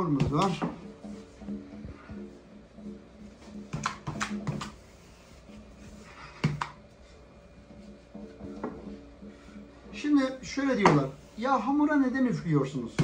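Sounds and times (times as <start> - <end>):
rolling pin knocking on marble: 10.8 - 11.1.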